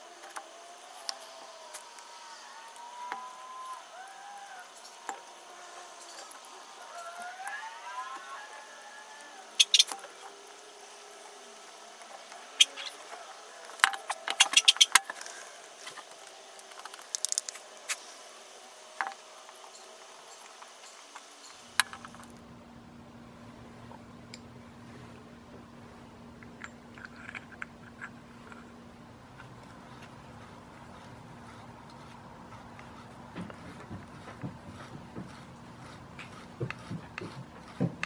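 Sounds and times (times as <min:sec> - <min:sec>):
metal parts clicking and clinking: 0:16.7 - 0:17.6, 0:26.4 - 0:28.7.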